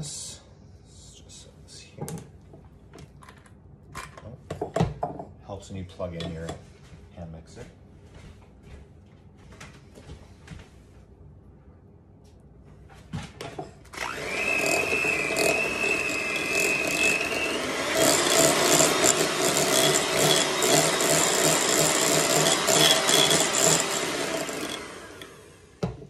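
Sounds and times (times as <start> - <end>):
electric hand mixer whining: 13.9 - 26.0.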